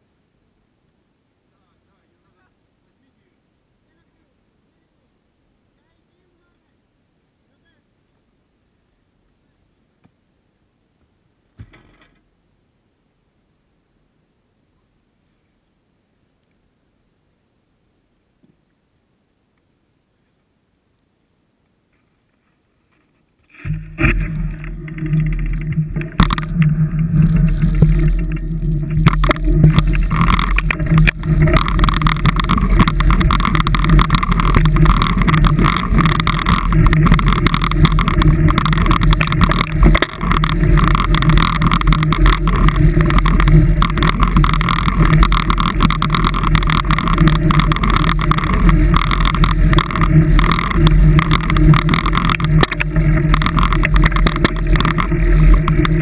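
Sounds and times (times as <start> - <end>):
vehicle engine drone: 23.5 - 56.0.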